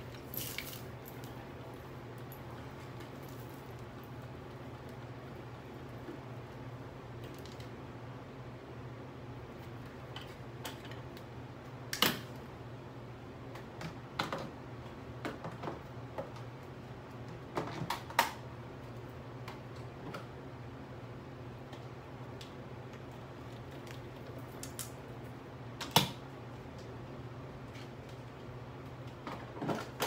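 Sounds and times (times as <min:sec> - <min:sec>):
steady low hum: 0:00.0 - 0:15.2.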